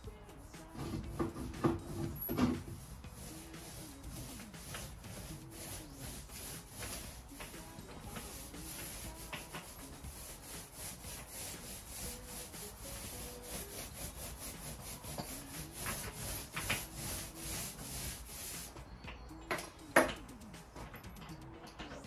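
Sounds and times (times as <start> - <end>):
paint roller rubbing on wall: 0.0 - 18.8.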